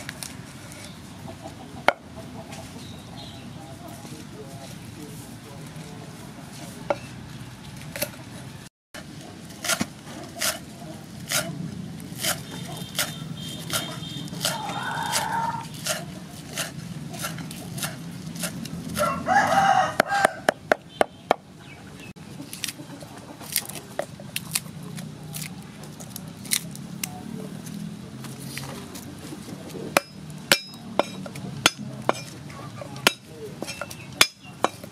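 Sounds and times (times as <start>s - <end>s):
cleaver chopping on wooden block: 9.6s - 10.6s, 29.9s - 32.4s, 33.0s - 34.9s
rooster crowing: 14.4s - 15.6s, 19.0s - 20.6s.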